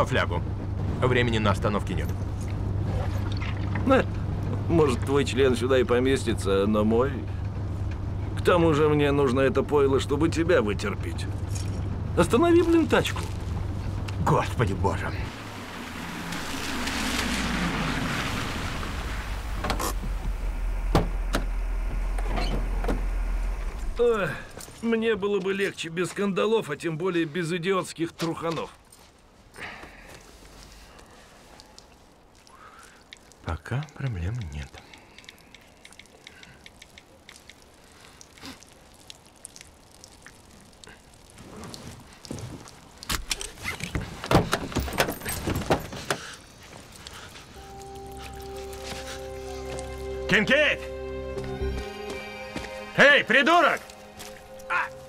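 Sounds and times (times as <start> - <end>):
car slowing to a stop: 0.6 - 24.8
car engine idling: 3.8 - 24.6
background hiss: 3.8 - 55.0
car door opening: 19.5 - 23.8
faint irregular dripping: 28.6 - 44.2, 46.0 - 50.2
small ticks: 31.0 - 41.4
sharp clicks: 34.4 - 38.4.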